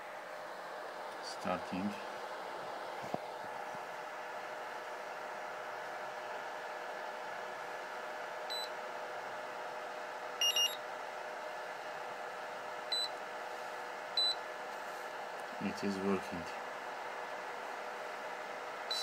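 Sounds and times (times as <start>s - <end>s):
steady hum: 0.0s - 19.0s
battery charger beeping: 10.4s - 10.8s.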